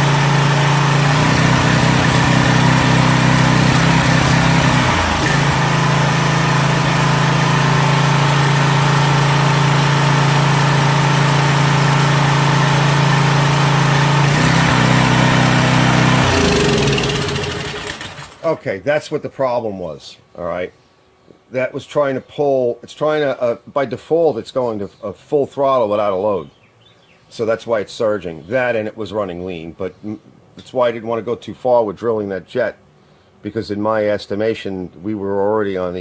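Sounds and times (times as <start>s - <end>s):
pressure washer engine running: 0.0s - 18.6s.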